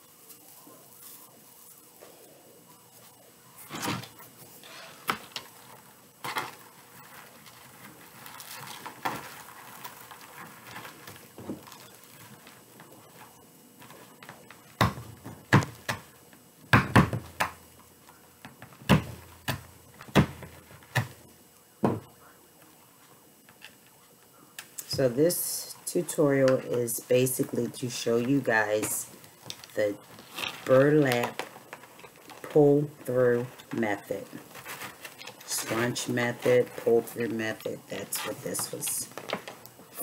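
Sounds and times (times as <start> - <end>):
knocks and thumps on a table: 21.8 - 22.1
soft rustling: 22.6 - 40.0.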